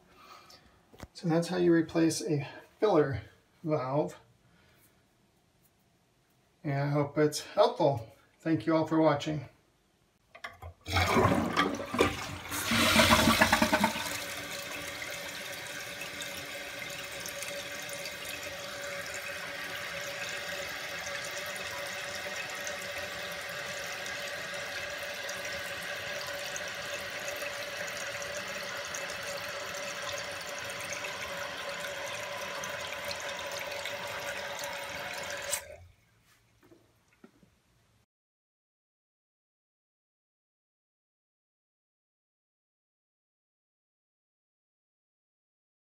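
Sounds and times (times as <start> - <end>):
toilet tank refilling: 10.6 - 35.8.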